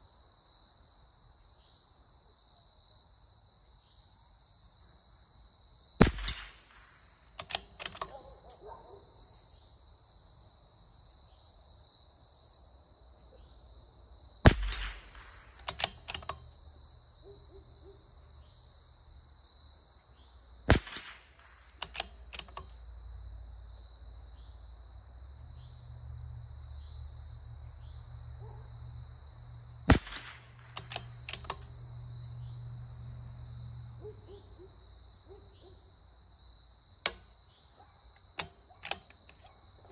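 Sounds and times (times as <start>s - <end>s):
high insect drone: 0.0s - 14.5s, 15.7s - 20.7s, 21.4s - 30.0s, 30.8s - 39.9s
rifle shots: 6.0s - 8.3s, 14.4s - 16.4s, 20.7s - 22.6s, 29.8s - 31.7s
rifle bolt clicks: 6.0s - 8.6s, 14.5s - 16.6s, 20.7s - 22.8s, 29.9s - 31.8s, 37.0s - 37.3s, 38.2s - 39.6s.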